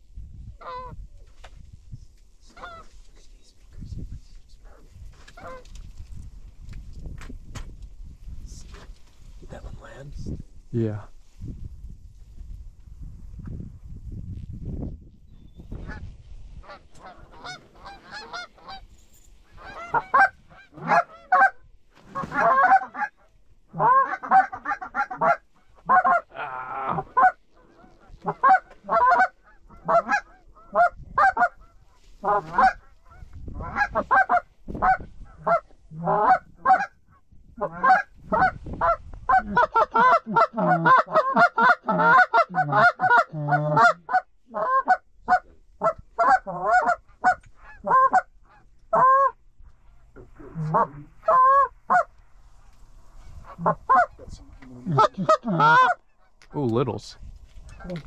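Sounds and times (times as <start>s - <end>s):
geese honking and clucking: 2.5s - 3.0s, 5.3s - 5.7s, 15.7s - 18.9s, 19.5s - 49.4s, 50.0s - 52.2s, 53.0s - 56.6s, 57.6s - 58.0s.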